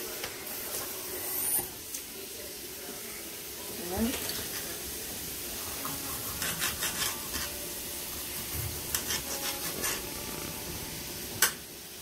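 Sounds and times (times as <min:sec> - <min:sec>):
utensil scraping in a skillet: 0:04.1 - 0:11.7.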